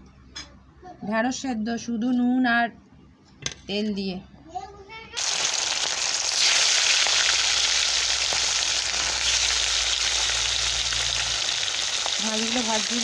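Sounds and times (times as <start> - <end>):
fish sizzling in hot oil: 5.2 - 13.0.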